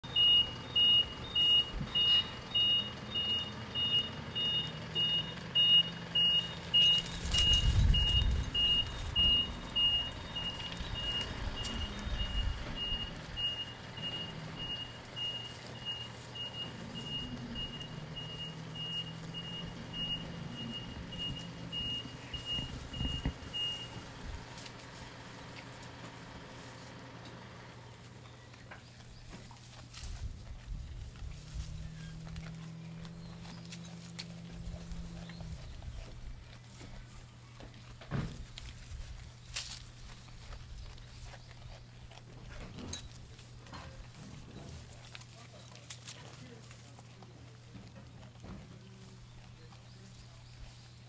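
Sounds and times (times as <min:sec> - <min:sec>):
reversing alarm beeping: 0:00.0 - 0:24.3
engine humming: 0:00.0 - 0:51.0
low rumble: 0:30.1 - 0:36.4.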